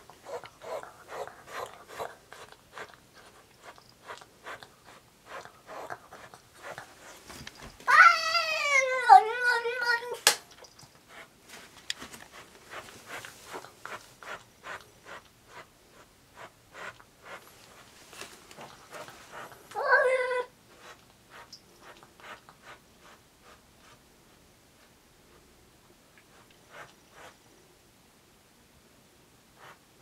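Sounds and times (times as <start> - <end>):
cat meowing loudly: 7.9 - 9.5.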